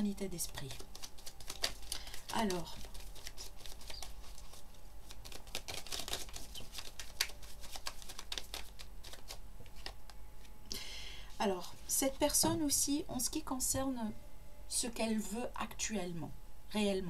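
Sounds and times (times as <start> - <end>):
cards shuffling: 0.4 - 10.5.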